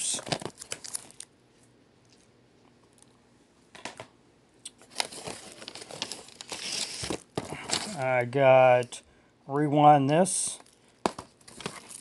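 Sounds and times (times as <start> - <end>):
crinkling packaging: 0.0 - 1.4, 4.7 - 8.0, 10.5 - 12.0
plastic wrap rustling: 0.2 - 1.3, 4.8 - 8.0, 10.7 - 12.0.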